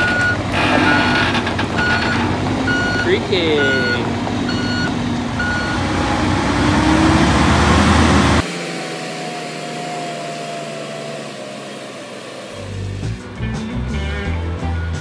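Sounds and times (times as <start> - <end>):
truck backup alarm beeping: 0.0 - 7.9
diesel truck engine: 0.0 - 15.0
thin engine drone: 2.6 - 14.4.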